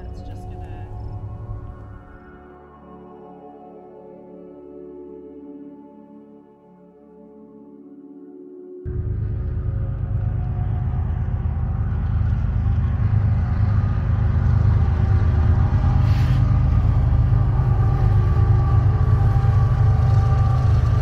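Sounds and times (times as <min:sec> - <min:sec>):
diesel locomotive engine rumble: 0:00.0 - 0:02.3, 0:08.9 - 0:21.0.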